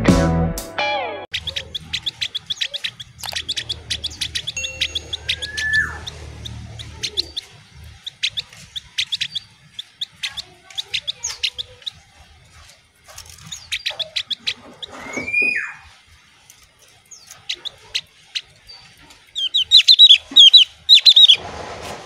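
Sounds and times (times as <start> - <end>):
bird slurred whistle: 1.3 - 11.7, 19.4 - 21.4
bird chirping: 1.3 - 21.4.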